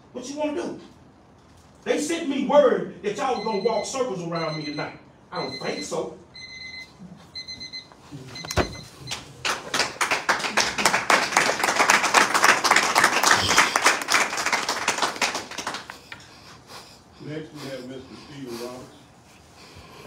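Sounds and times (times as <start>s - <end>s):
electronic beeping: 8.4s - 9.0s
thump: 8.5s - 8.9s
people applauding: 9.1s - 16.1s.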